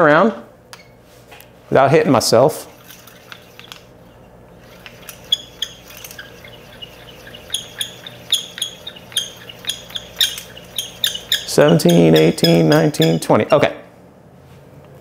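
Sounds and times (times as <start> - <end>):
whirled instrument clicking: 2.7 - 13.7.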